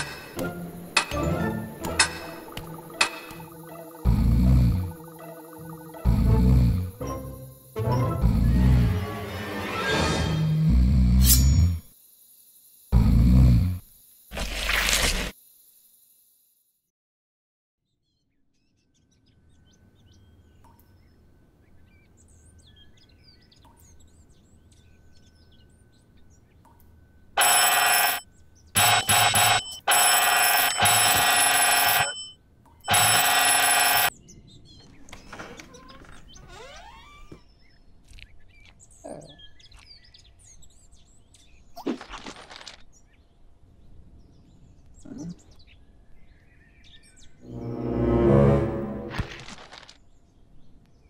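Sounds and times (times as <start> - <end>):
bell ringing loudly: 32.9 - 34.1.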